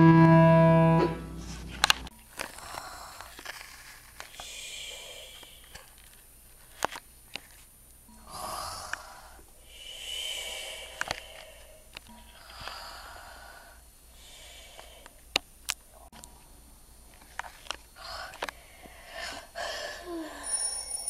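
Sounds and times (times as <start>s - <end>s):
person imitating snoring breaths: 8.2s - 11.7s.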